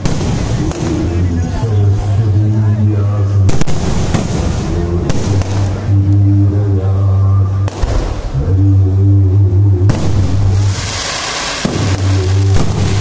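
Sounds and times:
fireworks bursting with sharp bangs: 0.0s - 1.6s, 3.5s - 5.9s, 7.6s - 8.4s, 9.9s - 13.0s
loud low-pitched music: 0.0s - 13.0s.

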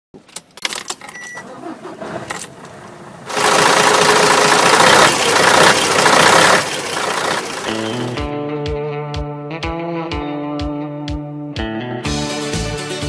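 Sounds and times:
diesel truck engine starting and idling: 1.0s - 8.3s.

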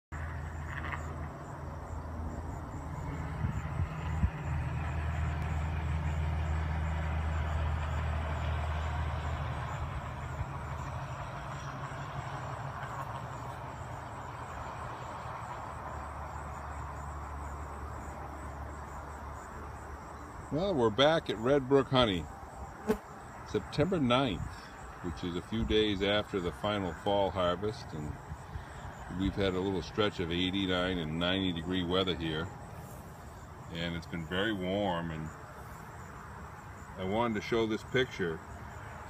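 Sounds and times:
honey bees buzzing: 28.0s - 37.1s.

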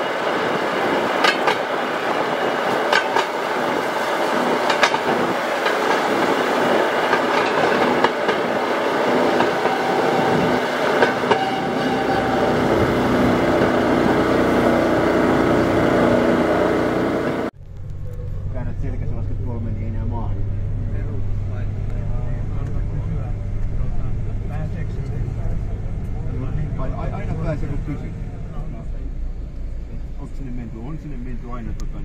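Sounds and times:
wheels clicking over rail joints: 0.0s - 14.8s
rail motor car engine: 0.0s - 32.0s.

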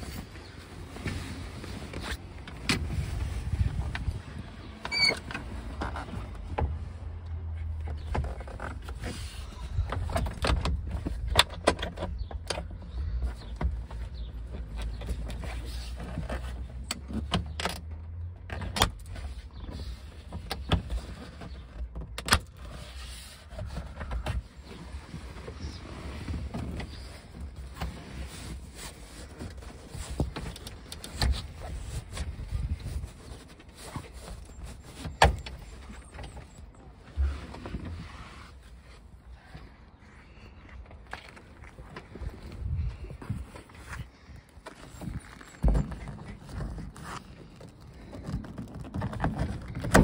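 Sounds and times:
low handling rumble: 0.0s - 11.3s, 34.4s - 50.0s
soft-top creaking and rustling: 0.0s - 50.0s.

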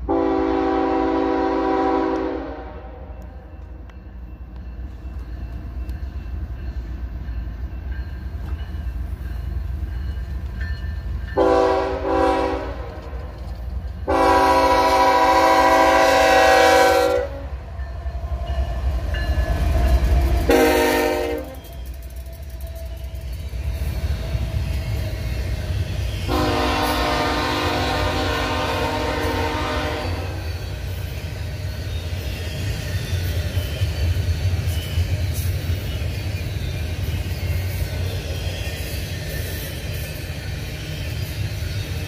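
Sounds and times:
locomotive engine and wheels rumbling: 0.0s - 42.0s
locomotive air horn blasts: 0.1s - 3.1s, 11.4s - 13.0s, 14.1s - 17.6s, 20.5s - 21.6s, 26.3s - 30.4s.

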